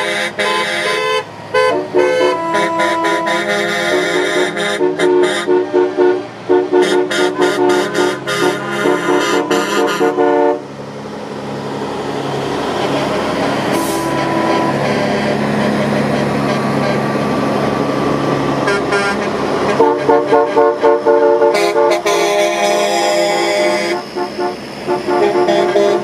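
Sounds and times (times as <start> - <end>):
heavy truck engine rumble: 0.0 - 26.0.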